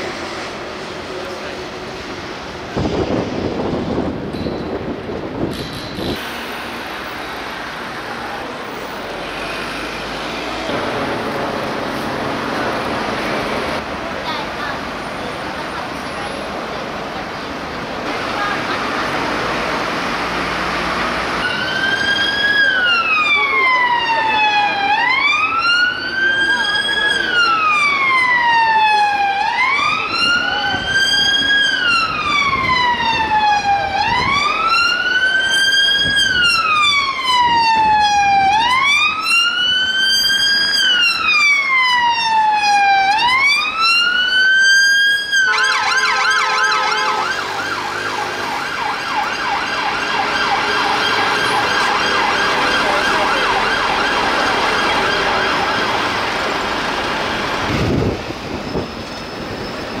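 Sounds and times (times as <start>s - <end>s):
police siren wailing: 21.2s - 58.0s
siren fast yelp: 21.4s - 56.2s.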